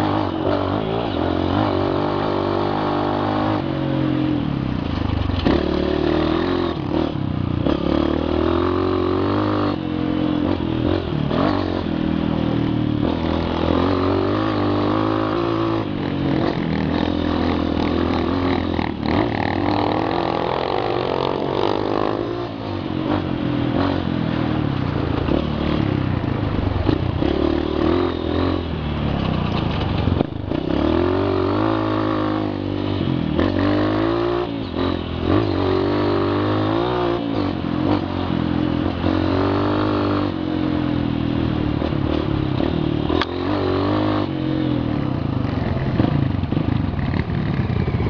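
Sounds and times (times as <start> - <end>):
motorcycle engine revving: 0.0 - 48.0
rattle from rough dirt track: 4.7 - 12.4, 13.0 - 32.6, 45.2 - 48.0.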